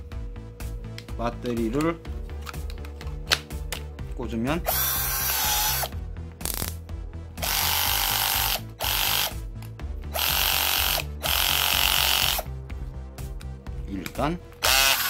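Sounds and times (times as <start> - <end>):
cordless drill whining: 4.7 - 5.9, 7.4 - 9.4, 10.1 - 12.5, 14.6 - 15.0.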